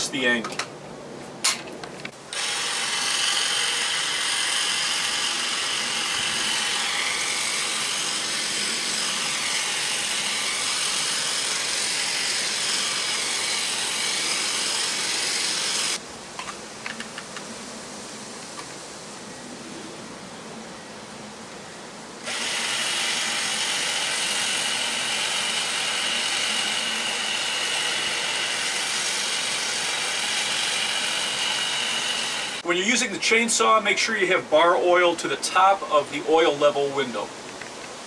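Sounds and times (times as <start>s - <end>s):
hedge trimmer running: 2.3s - 16.0s, 22.2s - 32.7s.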